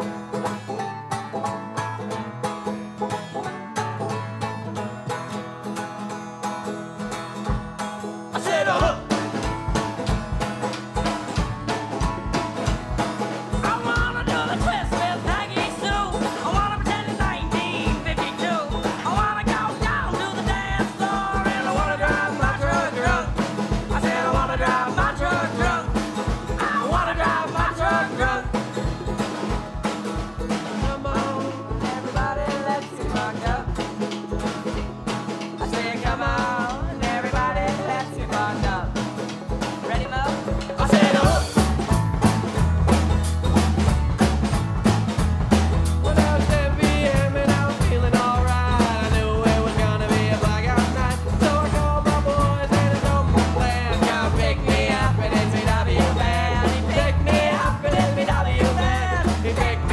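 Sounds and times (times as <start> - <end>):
upbeat country song: 0.0 - 59.9
drum beat: 7.0 - 59.9
person singing: 8.3 - 9.4, 13.5 - 28.9, 30.5 - 34.2, 35.5 - 41.9, 46.0 - 59.9.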